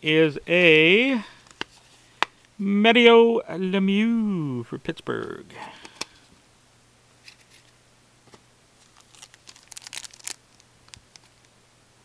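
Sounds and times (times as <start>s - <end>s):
foil pack crinkling and tearing: 8.8s - 11.5s.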